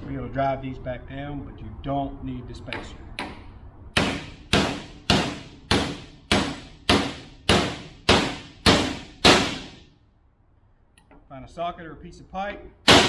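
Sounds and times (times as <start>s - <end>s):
hammer striking metal: 2.7s - 9.8s.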